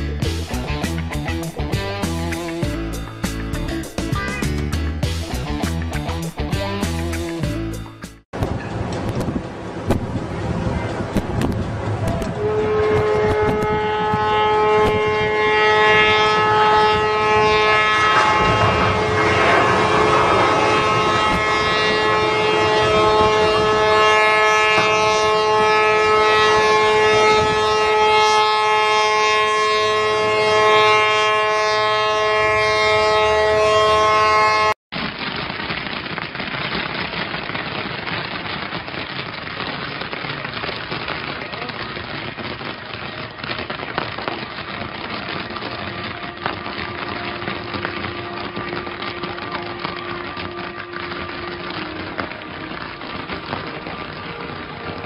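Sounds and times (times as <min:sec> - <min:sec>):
ship horns blasting: 0:12.0 - 0:34.8, 0:45.9 - 0:55.0
crackling hiss: 0:16.4 - 0:26.7, 0:35.0 - 0:55.0.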